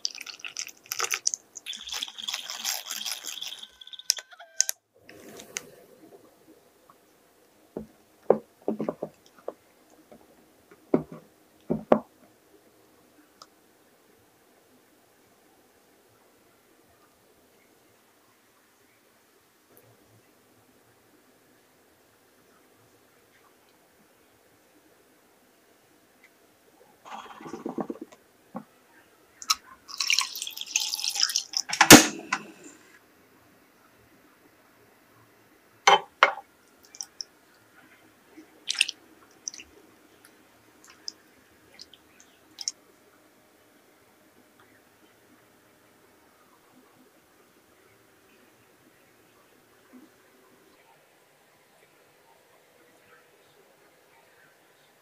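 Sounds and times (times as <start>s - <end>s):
water poured into saucepan: 0.0s - 4.3s, 29.4s - 32.8s, 38.7s - 39.7s
sharp clack: 31.7s - 32.5s.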